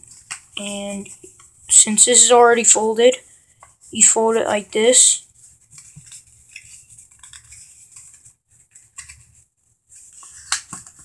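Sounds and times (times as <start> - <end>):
paper rustling and crinkling: 5.3 - 11.0.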